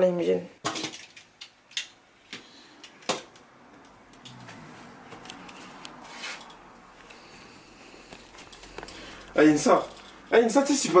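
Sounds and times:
soft rustling: 0:04.4 - 0:11.0.

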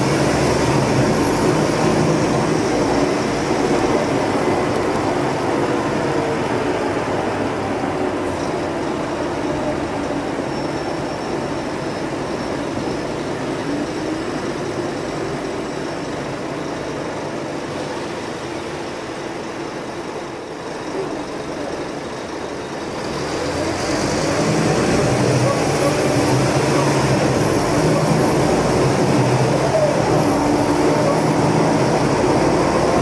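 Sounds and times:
bus diesel engine drone: 0:00.0 - 0:33.0
road rumble: 0:00.0 - 0:33.0.

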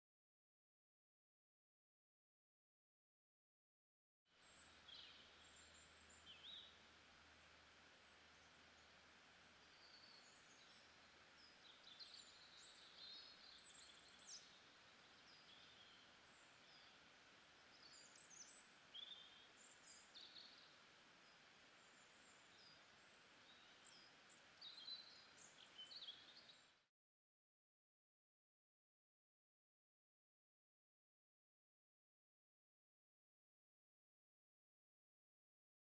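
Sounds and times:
soft steady hiss: 0:04.3 - 0:26.9
small birds chirping: 0:04.4 - 0:26.9.

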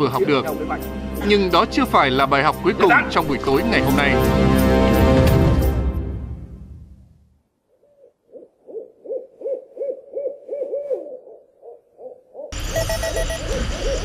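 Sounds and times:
background music: 0:00.0 - 0:07.3
owl hooting: 0:07.7 - 0:14.0.

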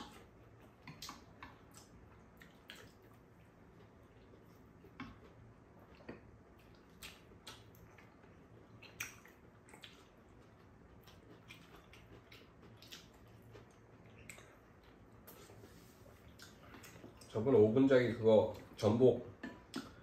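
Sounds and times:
soft chewing: 0:00.0 - 0:20.0.

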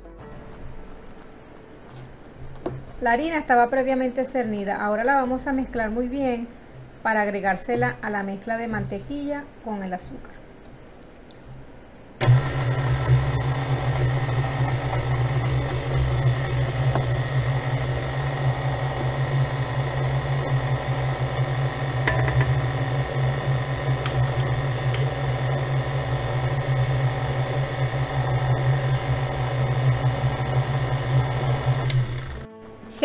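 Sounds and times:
stand mixer motor humming: 0:12.2 - 0:32.5.

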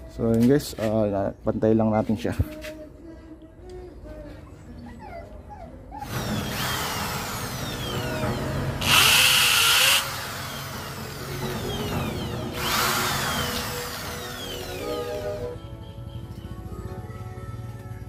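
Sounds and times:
electric drill running: 0:06.1 - 0:15.1.

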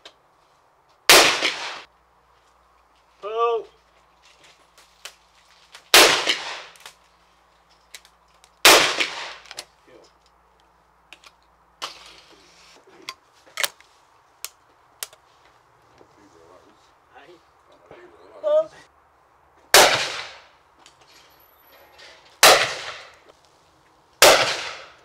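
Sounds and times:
shotgun shots: 0:01.1 - 0:01.9, 0:05.9 - 0:06.8, 0:08.6 - 0:09.4, 0:19.7 - 0:20.5, 0:22.4 - 0:23.1, 0:24.2 - 0:25.0.

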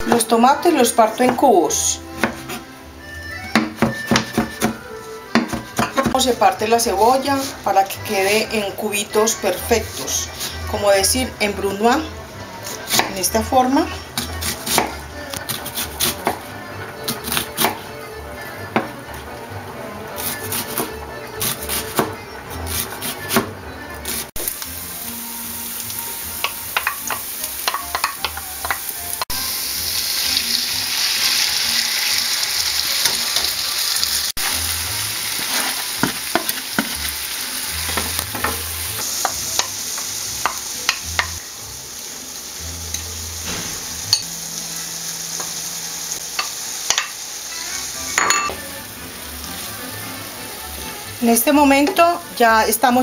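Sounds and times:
knife chopping on plastic board: 0:02.2 - 0:02.6, 0:03.6 - 0:06.2
wooden spatula scraping a pan: 0:07.1 - 0:07.9, 0:35.4 - 0:36.5
vegetables sizzling in a frying pan: 0:24.3 - 0:53.0.

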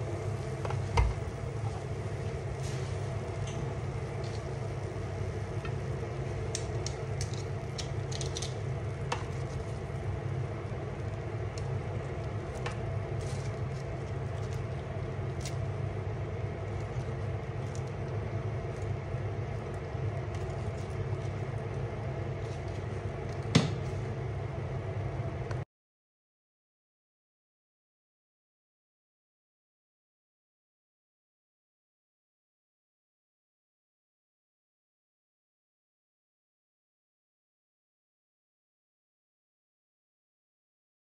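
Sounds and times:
low mechanical hum: 0:00.0 - 0:25.7.

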